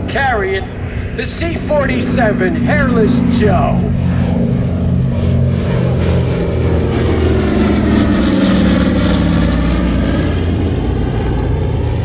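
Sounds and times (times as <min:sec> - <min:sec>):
propeller plane engines droning: 0:00.0 - 0:12.0.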